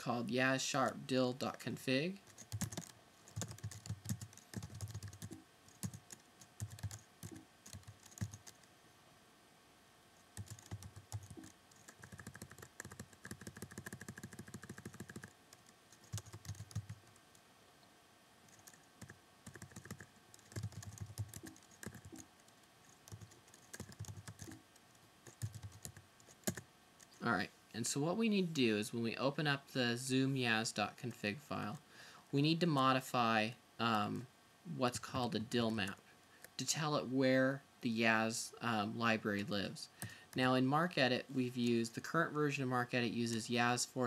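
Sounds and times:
keyboard typing: 0:02.2 - 0:08.7, 0:10.4 - 0:17.3, 0:18.5 - 0:27.2.

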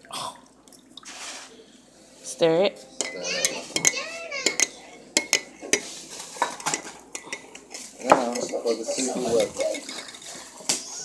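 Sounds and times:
spoon clinking in ceramic mug: 0:03.0 - 0:08.6.

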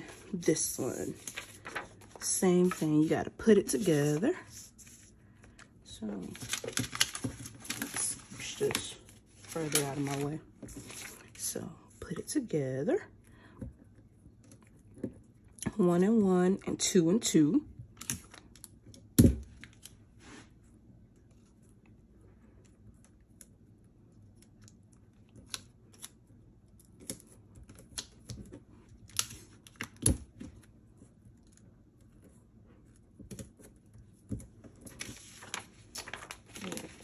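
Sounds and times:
paper rustling: 0:00.0 - 0:05.1, 0:06.2 - 0:11.4, 0:34.8 - 0:37.0.

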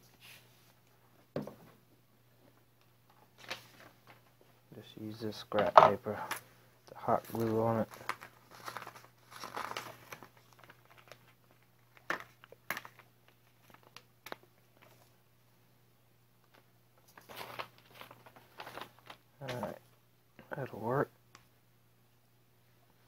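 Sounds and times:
paper crinkling and rustling: 0:03.4 - 0:04.4, 0:07.0 - 0:15.2, 0:16.5 - 0:19.8.

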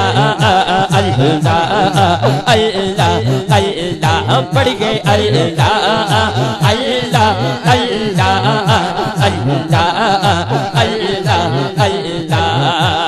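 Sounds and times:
percussive beats: 0:00.0 - 0:06.8
lead voice chanting: 0:00.0 - 0:13.0
men chanting over loudspeaker: 0:00.0 - 0:13.0.

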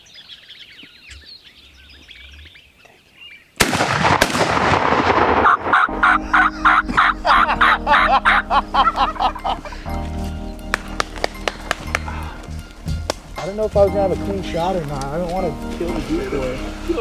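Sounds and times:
faint songbird chirping: 0:00.0 - 0:03.6, 0:08.5 - 0:17.0
shotgun blasts: 0:03.6 - 0:05.9
music with a steady beat: 0:06.2 - 0:17.0.

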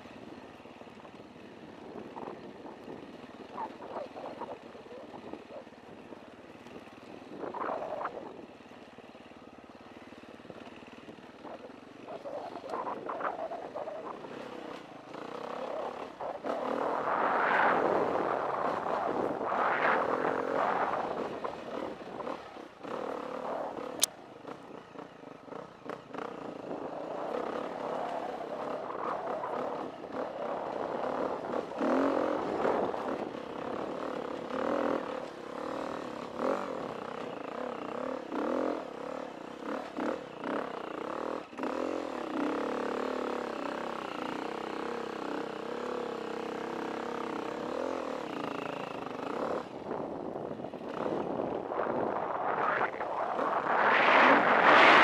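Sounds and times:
dirt bike engine revving: 0:25.5 - 0:50.1, 0:50.8 - 0:55.0.

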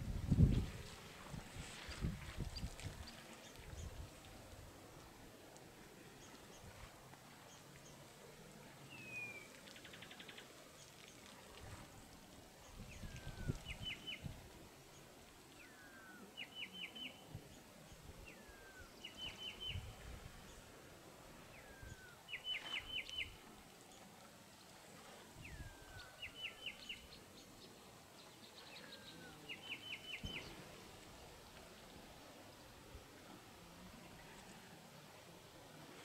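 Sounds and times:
small bird singing: 0:25.5 - 0:30.6.

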